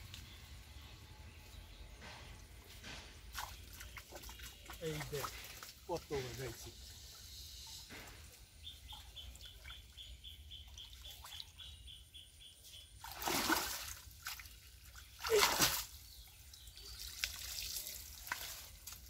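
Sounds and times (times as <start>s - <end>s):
pond water splashing: 3.0s - 6.8s, 8.0s - 11.8s, 12.9s - 19.0s.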